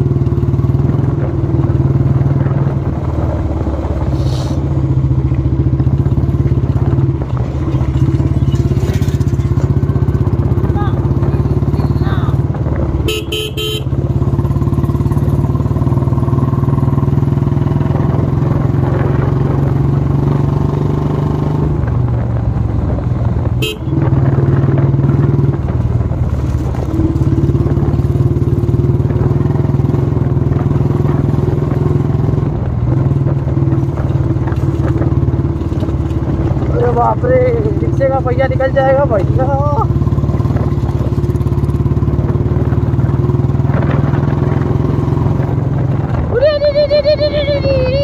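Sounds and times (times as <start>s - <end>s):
motorcycle engine running: 0.0s - 48.0s
horn beeps: 13.0s - 14.0s, 23.6s - 24.0s.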